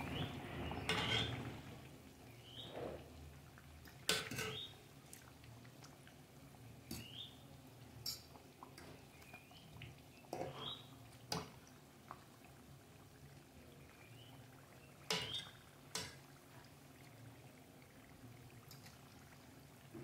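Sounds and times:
oil sizzling in frying pan: 0.0 - 13.2, 15.0 - 16.8
bursts of sizzle: 0.0 - 20.0.

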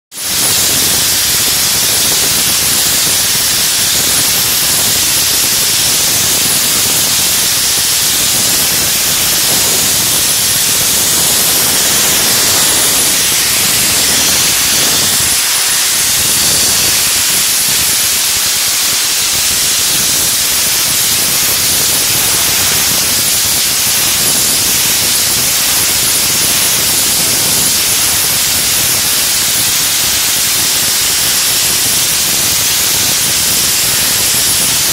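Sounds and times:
blast nozzle spraying hiss: 0.2 - 34.9.

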